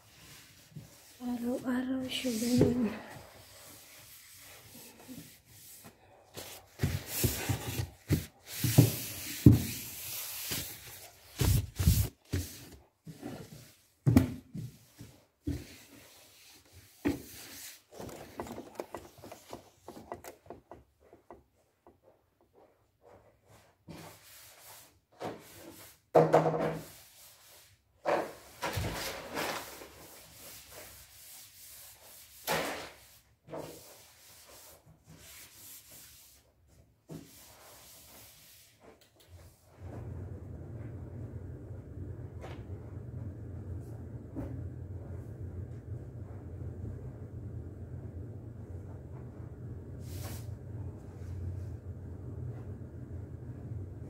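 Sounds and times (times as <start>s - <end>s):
cloth rubbing and wiping: 0.0s - 21.2s, 22.6s - 26.1s, 29.3s - 41.2s, 48.6s - 52.8s.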